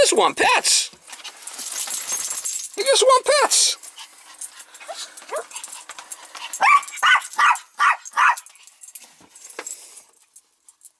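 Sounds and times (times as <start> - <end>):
dog yipping excitedly: 3.2 - 8.6
dog whining: 4.8 - 5.6, 6.5 - 8.5.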